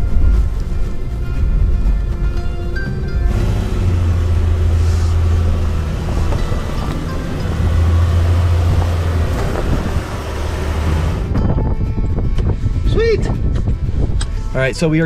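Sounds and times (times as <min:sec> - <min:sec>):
engine working under throttle: 0:03.2 - 0:11.4
tyres grinding over gravel: 0:03.3 - 0:11.3.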